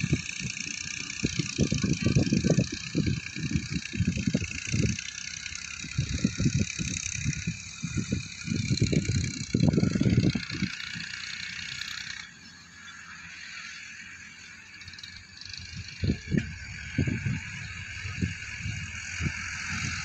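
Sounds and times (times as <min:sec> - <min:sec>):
tractors droning: 0:00.0 - 0:20.0
heavy low rumbling surges: 0:15.8 - 0:20.0.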